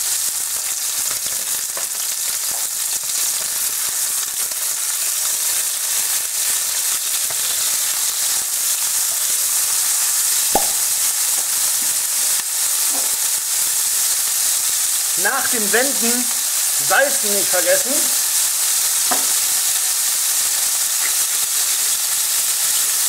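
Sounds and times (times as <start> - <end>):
patties sizzling in a pan: 0.0 - 23.0
sharp tap: 10.5 - 10.8, 19.1 - 19.3.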